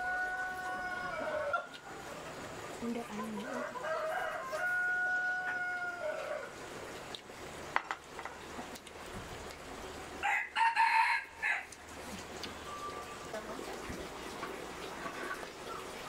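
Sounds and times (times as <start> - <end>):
rooster crowing: 0.0 - 1.8, 3.5 - 6.6, 10.2 - 11.7.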